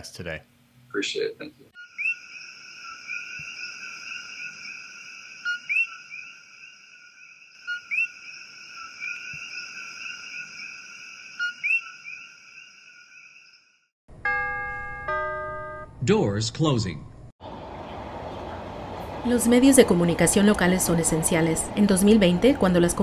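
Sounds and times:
two-note frog calls: 1.8s - 10.6s
frogs trilling: 1.8s - 13.6s.

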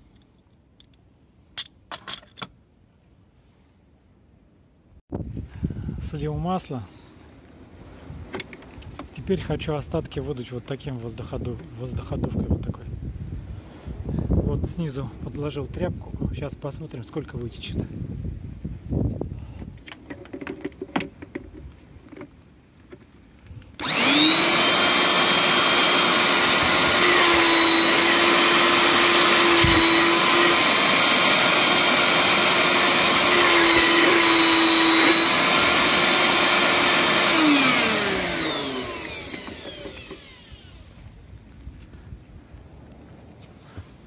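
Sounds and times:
electric air blower whining: 23.8s - 41.1s.

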